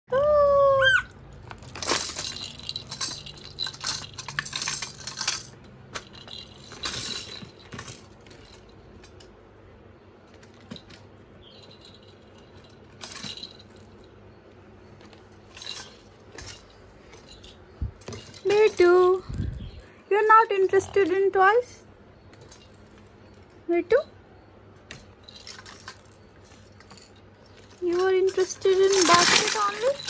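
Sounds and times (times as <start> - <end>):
high-pitched voice: 0.1 - 1.1
plastic laundry basket rattling: 27.6 - 30.0.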